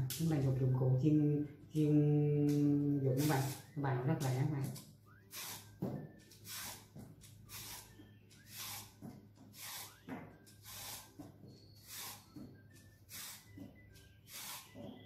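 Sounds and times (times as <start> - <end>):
peeler scraping carrot: 2.4 - 13.6, 14.2 - 15.0.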